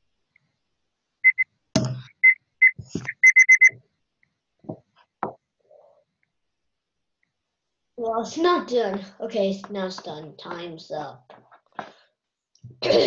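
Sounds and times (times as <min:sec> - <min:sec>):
short high alarm beeps: 0:01.2 - 0:01.4, 0:02.1 - 0:03.8.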